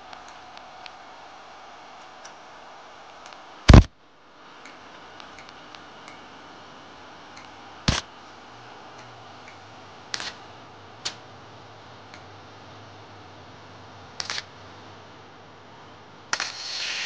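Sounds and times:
welder tack welding bursts: 7.9s - 8.1s, 16.3s - 17.0s.

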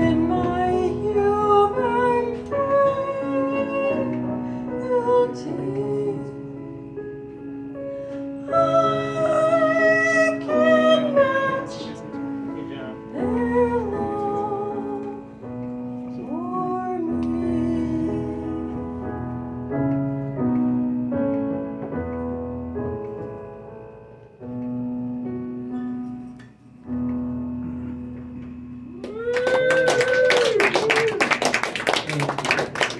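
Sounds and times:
piano playing slow chords: 0.0s - 29.5s
audience applause and cheer: 28.9s - 32.9s.

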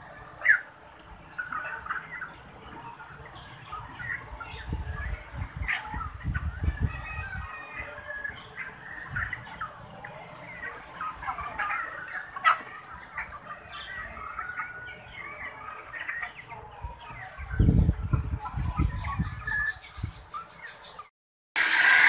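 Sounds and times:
chickens clucking and calling: 0.0s - 22.0s.

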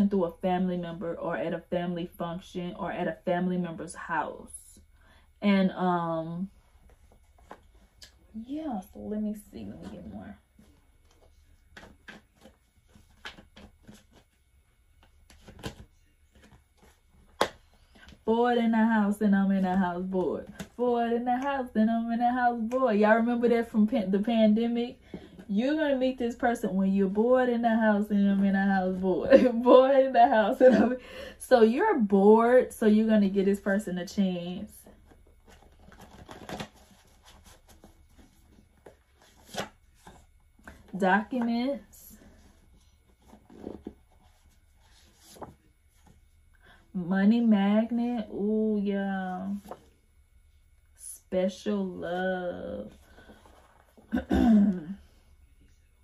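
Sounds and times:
cards being shuffled: 11.2s - 14.3s, 15.0s - 18.2s, 35.4s - 40.9s.

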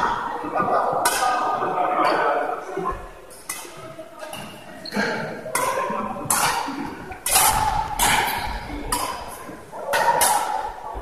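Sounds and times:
voices in echoing hall: 0.0s - 11.0s
badminton racket hitting shuttlecock: 5.5s - 10.8s.

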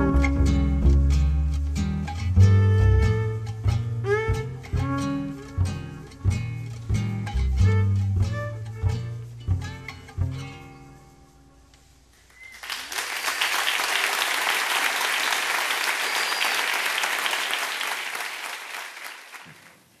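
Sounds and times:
audience applauding: 12.2s - 20.0s.

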